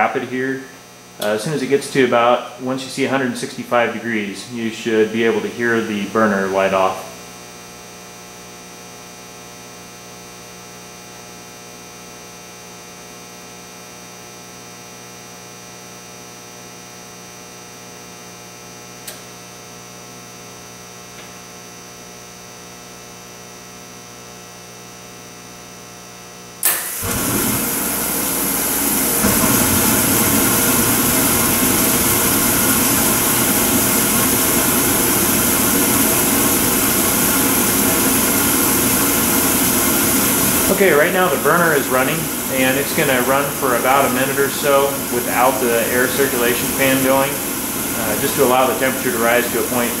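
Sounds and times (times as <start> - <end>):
steady electrical hum: 0.0 - 50.0
oil burner lighting off: 0.7 - 3.1, 26.6 - 50.0
burner blower and flame rush: 26.6 - 50.0.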